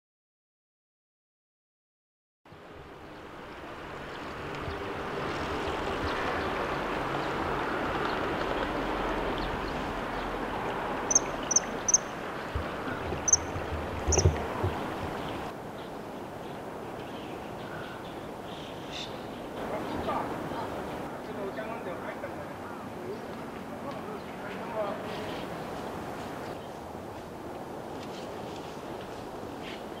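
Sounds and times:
bird chirping: 0:11.1 - 0:20.7.

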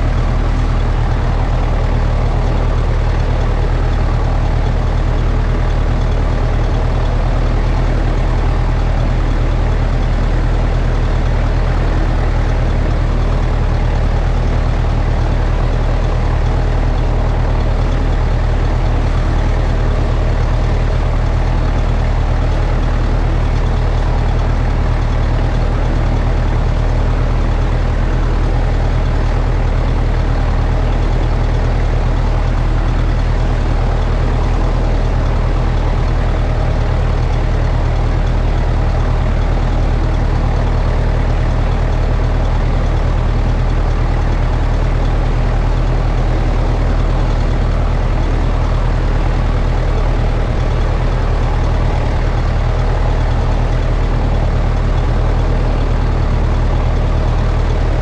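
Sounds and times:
tractor engine running under load: 0:00.0 - 0:58.0.

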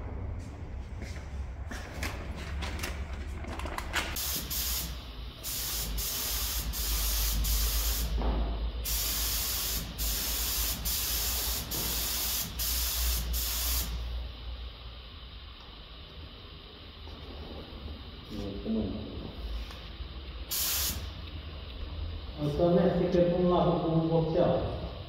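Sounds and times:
low hum: 0:00.0 - 0:04.1
spray gun hissing: 0:04.2 - 0:08.2, 0:08.8 - 0:14.2, 0:20.4 - 0:21.2.

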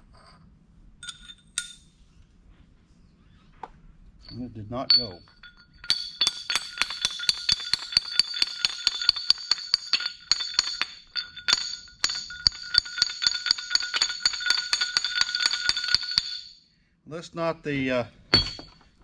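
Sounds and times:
metal-on-metal tapping: 0:04.2 - 0:16.6, 0:18.3 - 0:19.0.

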